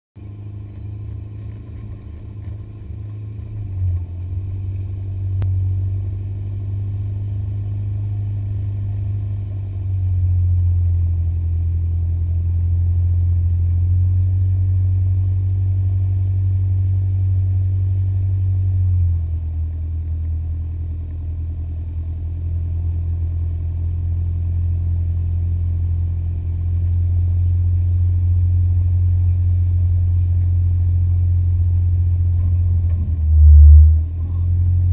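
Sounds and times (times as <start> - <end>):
engine droning under load: 0.2 - 34.9.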